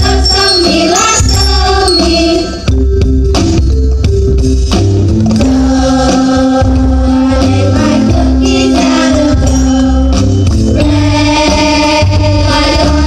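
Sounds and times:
children's choir singing: 0.0s - 2.7s, 5.4s - 13.0s
light jingling percussion: 0.0s - 11.6s
instrumental accompaniment with bass: 0.0s - 13.0s.

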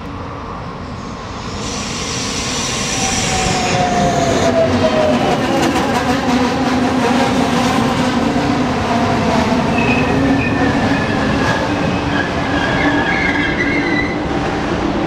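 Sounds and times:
train wheels rumbling over rails: 0.0s - 15.0s
high squeals: 0.9s - 5.3s.

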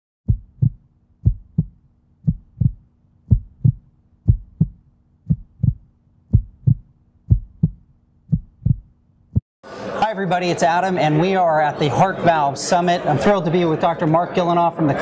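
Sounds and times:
heartbeat thumps: 0.3s - 9.4s.

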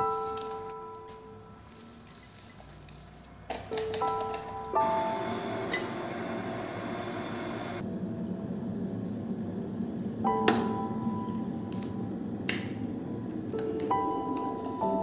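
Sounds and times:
soft music with bell-like notes: 0.0s - 2.8s, 3.7s - 5.9s, 10.3s - 12.3s, 13.2s - 15.0s
electric kettle rumbling: 4.9s - 10.4s.

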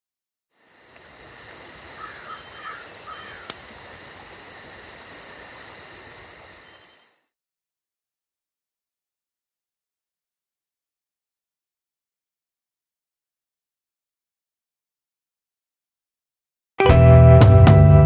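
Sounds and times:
crickets trilling: 0.5s - 7.3s
short insect chirps: 0.6s - 7.3s.

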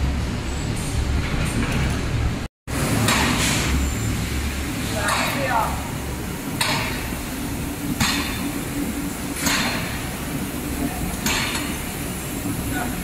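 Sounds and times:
factory machinery humming: 0.0s - 13.0s
compressed air hissing bursts: 5.8s - 13.0s.

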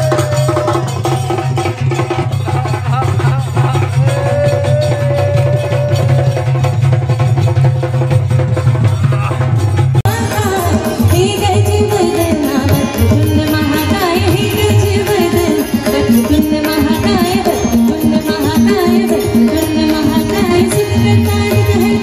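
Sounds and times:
person singing into a microphone: 0.0s - 6.7s, 10.1s - 22.0s
tabla playing a steady rhythm: 0.0s - 22.0s
harmonium chords: 10.0s - 22.0s.

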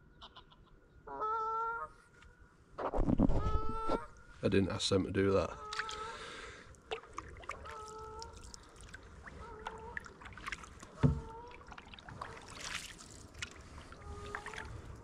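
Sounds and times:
paddle strokes in water: 6.9s - 15.0s
knocks against canoe hull: 11.0s - 11.3s.

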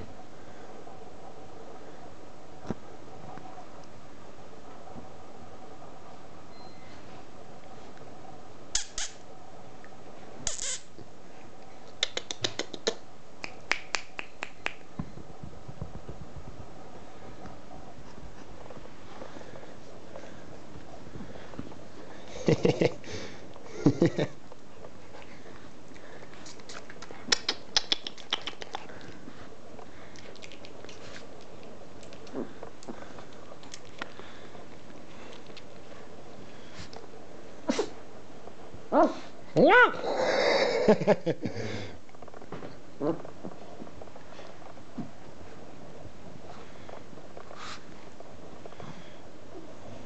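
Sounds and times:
puppies clicks and ticks: 11.8s - 14.9s, 25.9s - 29.2s, 29.8s - 34.2s
soft low thumps: 14.9s - 18.8s.

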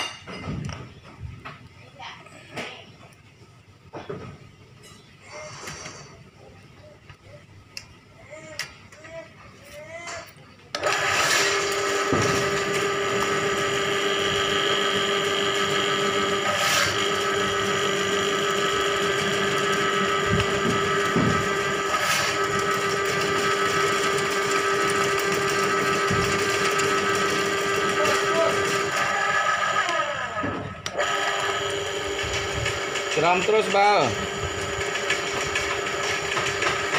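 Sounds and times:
drain-cleaning machine motor hum: 10.8s - 36.9s.

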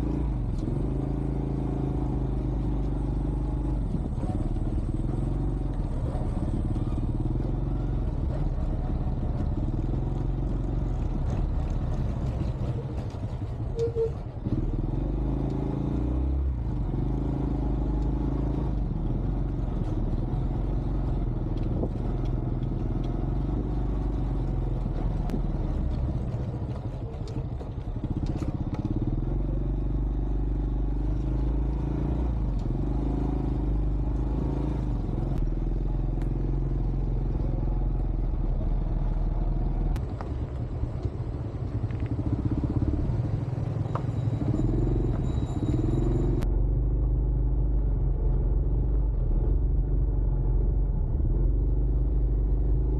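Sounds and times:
small motorcycle engine running: 40.1s - 46.4s.

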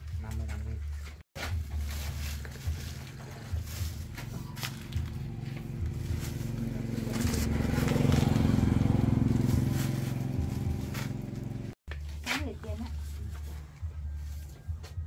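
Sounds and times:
small engine running: 2.7s - 11.8s.

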